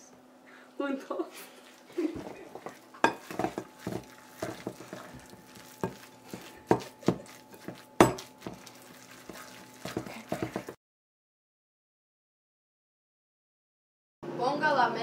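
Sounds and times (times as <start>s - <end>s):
spoon stirring thick dough: 1.5s - 10.8s
spoon knocking against bowl: 2.6s - 8.7s.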